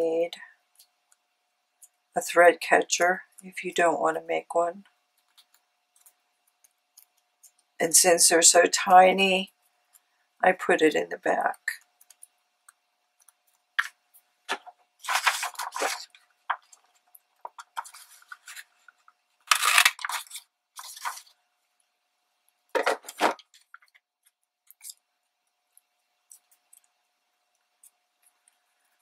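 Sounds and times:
paper crinkling: 0:14.5 - 0:21.4.

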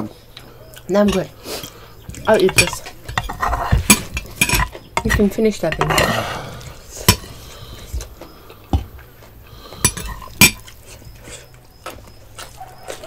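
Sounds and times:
spoon clinking dishes: 0:01.0 - 0:06.2, 0:09.8 - 0:10.7.

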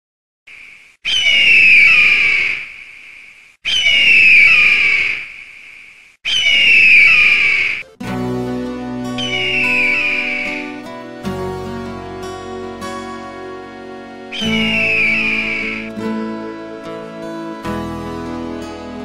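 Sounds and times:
bird of prey screaming: 0:00.5 - 0:07.8, 0:09.2 - 0:10.6, 0:14.3 - 0:15.9
music with held notes: 0:07.8 - 0:19.0.

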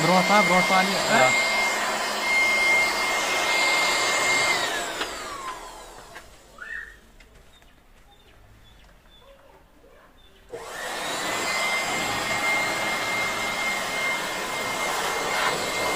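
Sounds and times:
electric blower whining: 0:00.0 - 0:06.8, 0:10.5 - 0:15.9.

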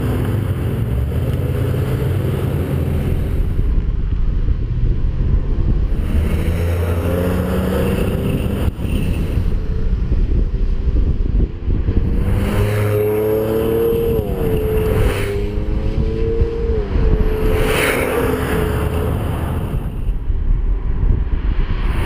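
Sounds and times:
car engines revving: 0:00.0 - 0:20.6
road noise: 0:00.0 - 0:22.0.

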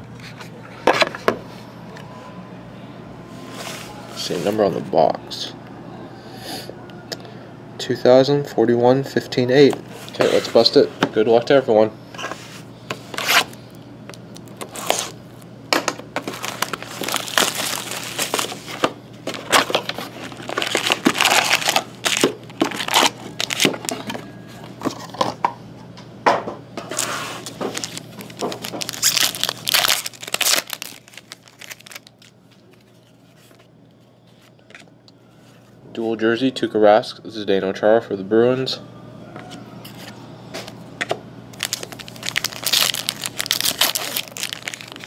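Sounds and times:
card handling: 0:12.9 - 0:15.5, 0:16.1 - 0:25.4, 0:26.9 - 0:33.7, 0:41.6 - 0:45.0
plastic wrappers crinkling and tearing: 0:14.3 - 0:15.2, 0:16.2 - 0:25.2, 0:26.9 - 0:33.6, 0:41.6 - 0:45.0.

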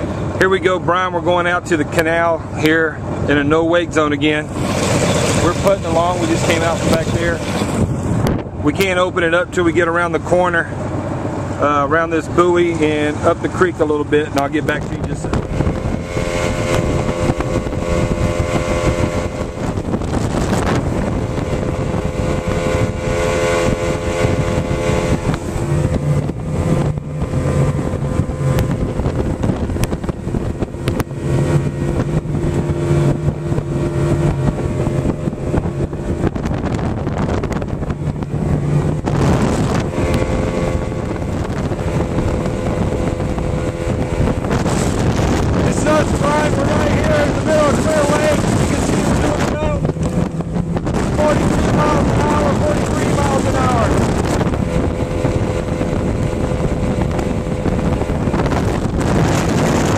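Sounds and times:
outboard motor running: 0:00.0 - 0:59.9
rush of boat wake: 0:00.0 - 0:59.9
wind on microphone: 0:00.0 - 0:59.9.

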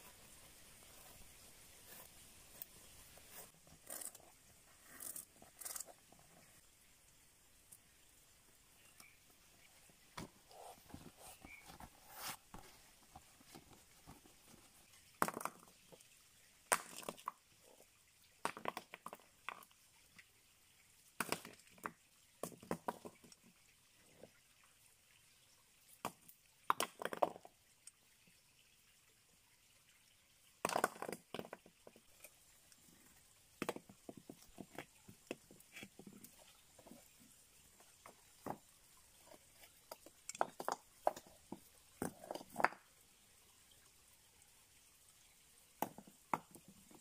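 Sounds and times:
faint background hiss: 0:00.0 - 0:47.0
stones knocking on rock: 0:15.2 - 0:15.6, 0:30.6 - 0:31.6, 0:33.6 - 0:35.4, 0:40.4 - 0:42.8.

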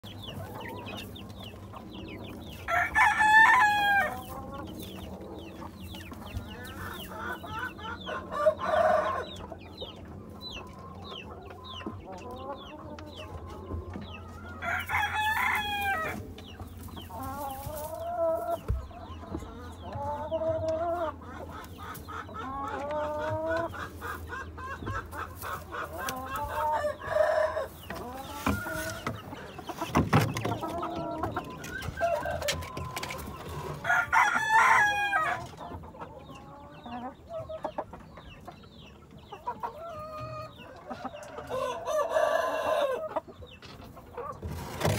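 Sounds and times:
hens clucking: 0:00.0 - 0:44.9
rooster crowing: 0:02.7 - 0:04.2, 0:14.6 - 0:16.2, 0:33.8 - 0:35.4, 0:41.4 - 0:43.0.

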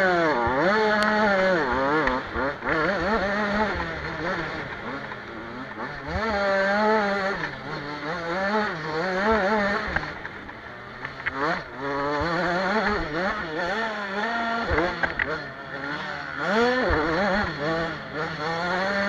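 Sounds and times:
motocross bike engine revving: 0:00.0 - 0:19.0.

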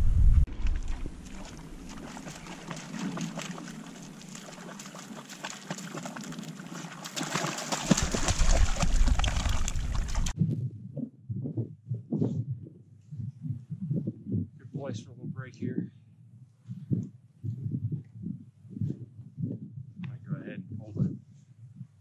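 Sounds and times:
dog splashing through water: 0:00.5 - 0:10.4.

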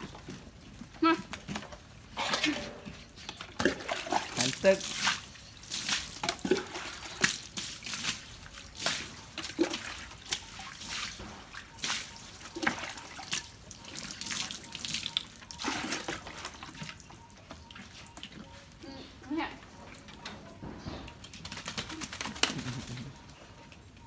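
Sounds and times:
water dripping on wooden decking: 0:02.9 - 0:24.0
water pouring over dog: 0:03.6 - 0:17.1.

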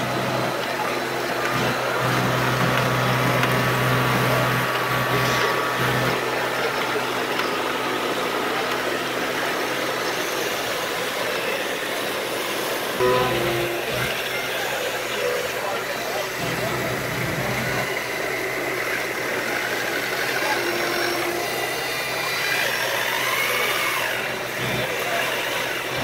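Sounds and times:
machine hum: 0:00.0 - 0:24.9
murmur of background voices: 0:00.0 - 0:26.0.

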